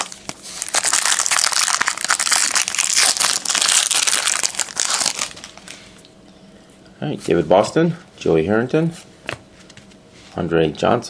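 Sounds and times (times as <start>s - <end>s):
wrapper crinkling as torn open: 0.0s - 5.8s.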